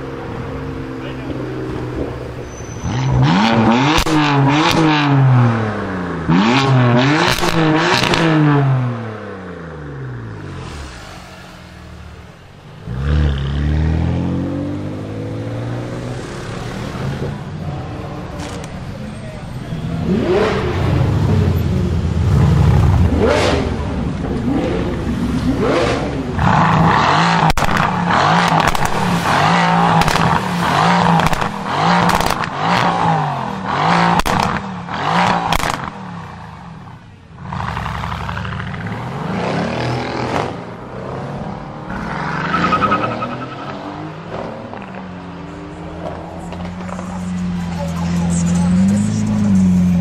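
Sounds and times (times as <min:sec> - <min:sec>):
car engine revving: 0:00.0 - 0:50.0
exhaust crackles and pops: 0:27.4 - 0:32.9, 0:34.1 - 0:36.0.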